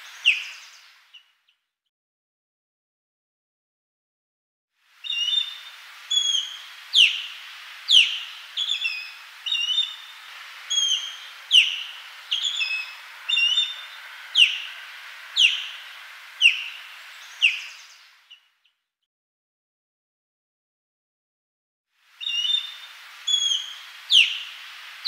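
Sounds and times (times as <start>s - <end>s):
osprey whistled calls: 0.0s - 1.3s, 5.0s - 18.5s, 22.2s - 25.0s
faint steady hiss: 0.0s - 1.5s, 4.8s - 18.6s, 21.9s - 25.0s.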